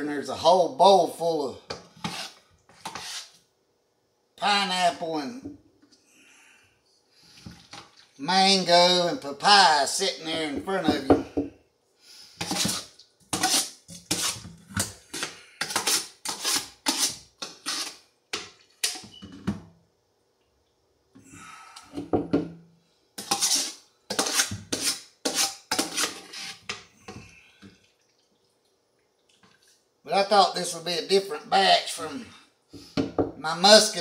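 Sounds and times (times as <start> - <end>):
spoon scraping fruit from pot: 1.7 - 3.4, 12.4 - 19.3, 23.2 - 27.3.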